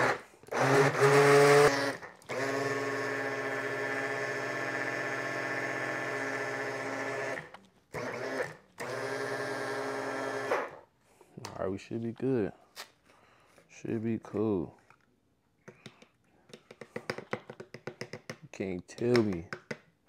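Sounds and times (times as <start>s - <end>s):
blender motor running: 0.0s - 10.8s.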